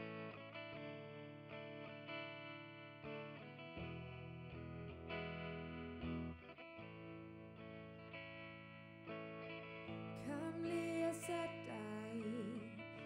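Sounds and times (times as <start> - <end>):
electric guitar strumming chords: 0.0 - 13.0.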